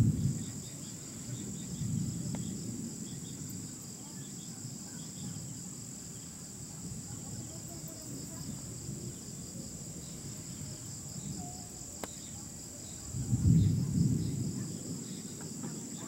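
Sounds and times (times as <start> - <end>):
night insects chorus: 0.0 - 16.0
thunder rumbling: 0.0 - 16.0.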